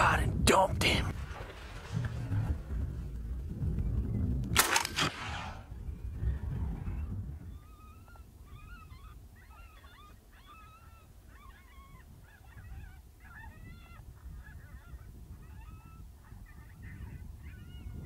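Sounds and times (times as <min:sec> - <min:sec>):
low rumble: 0:00.8 - 0:07.4.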